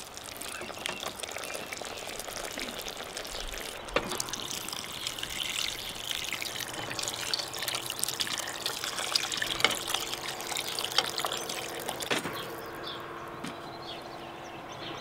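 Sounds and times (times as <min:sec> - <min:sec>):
water pouring into pot: 0:00.0 - 0:12.8.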